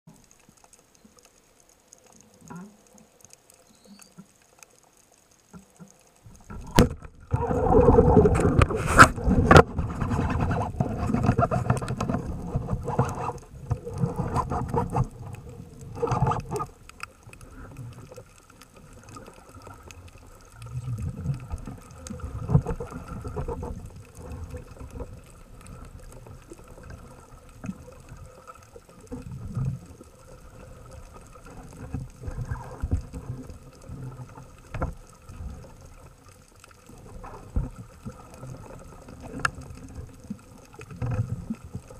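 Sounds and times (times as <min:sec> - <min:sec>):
low rumbling of water: 0:00.1 - 0:41.9
rushing water underwater: 0:00.1 - 0:41.9.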